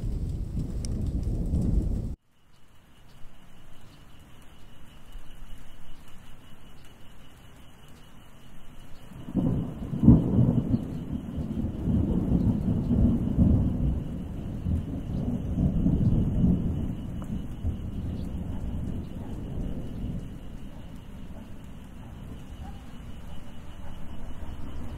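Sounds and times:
rolling thunder: 0.0s - 2.2s, 9.2s - 24.9s.

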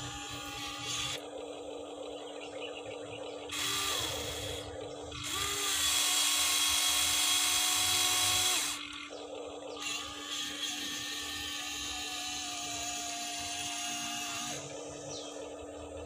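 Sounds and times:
small electric motors whirring: 0.0s - 1.3s, 3.5s - 16.0s.

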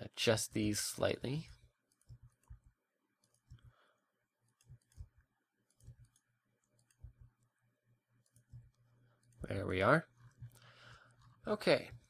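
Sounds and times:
computer mouse clicks: 1.4s - 3.8s, 4.4s - 7.6s, 8.2s - 12.0s.

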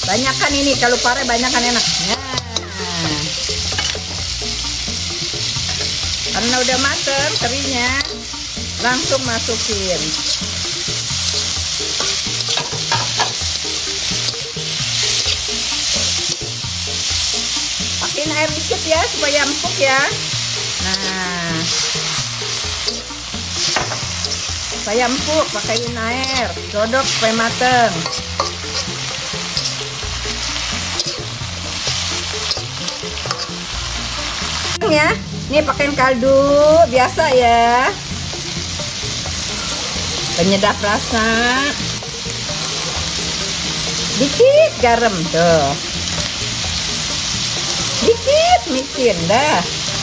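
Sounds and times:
background music: 0.0s - 50.0s
food sizzling in a wok: 0.0s - 50.0s
metal spatula scraping a pan: 5.5s - 34.8s.

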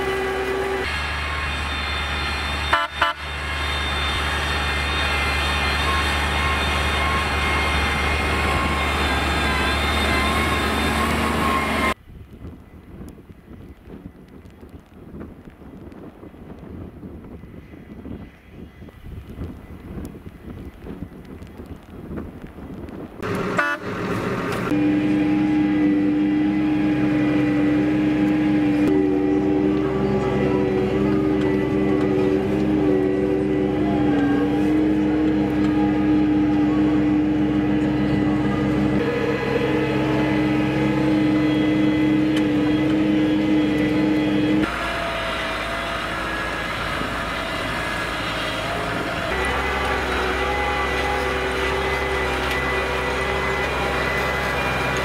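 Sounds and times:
tractor diesel engine droning: 0.0s - 12.0s, 23.2s - 55.0s.

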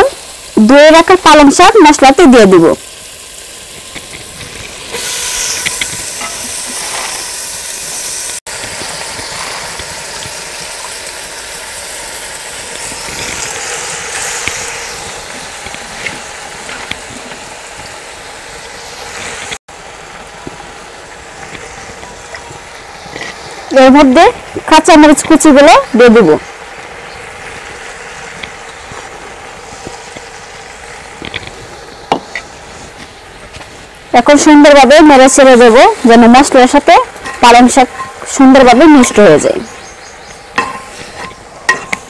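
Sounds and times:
spice paste sizzling in a pot: 0.0s - 42.0s.

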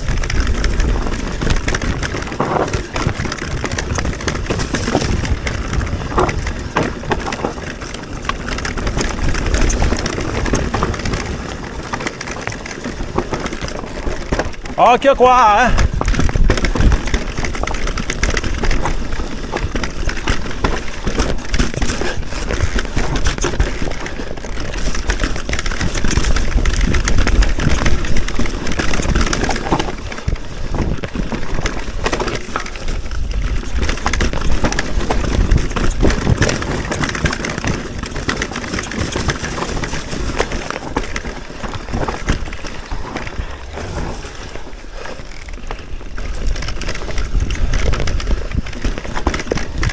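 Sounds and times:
small knocks and rattles: 0.0s - 14.7s
tyres crunching over rock and gravel: 0.0s - 49.9s.

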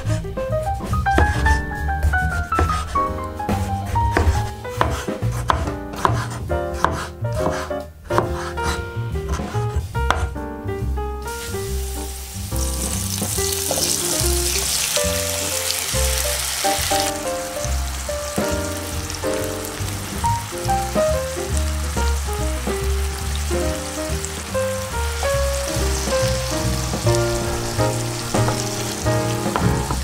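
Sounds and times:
background music: 0.0s - 30.0s
garlic sizzling in a pan: 11.2s - 30.0s.

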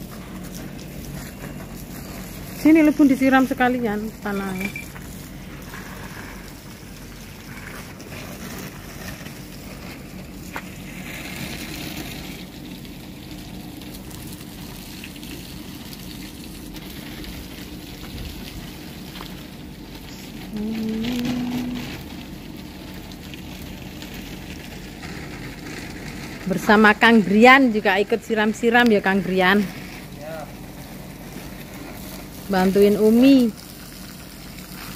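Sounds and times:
garden hose spraying water: 0.0s - 34.9s
person's voice: 2.6s - 4.8s, 20.5s - 22.0s.

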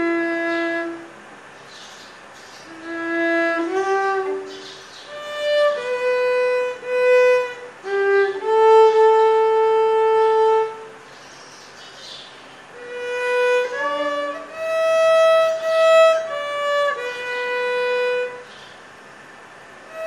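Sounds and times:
violin playing slow melody: 0.0s - 1.2s, 2.7s - 11.0s, 12.7s - 18.5s.

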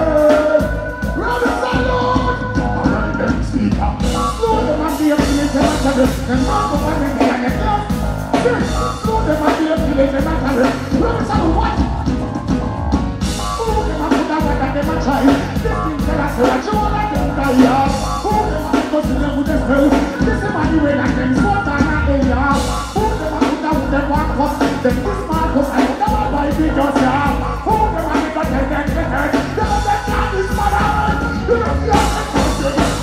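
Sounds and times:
reggae music with strong bass: 0.0s - 33.0s
man chanting and singing: 13.6s - 33.0s.

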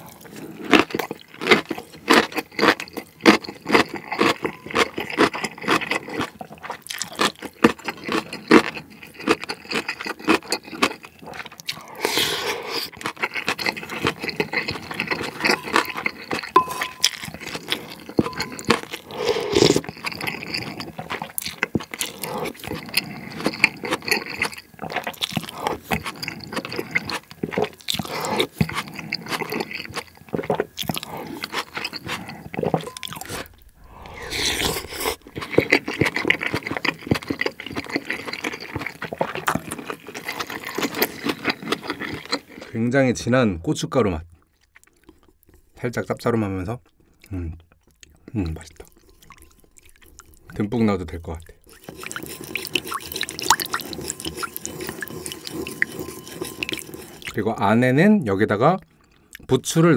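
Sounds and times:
wet chewing: 0.0s - 42.8s, 44.4s - 45.8s, 46.8s - 57.7s
spoon scraping ceramic bowl: 13.5s - 21.4s, 31.3s - 38.8s, 48.8s - 50.6s, 51.6s - 57.6s.

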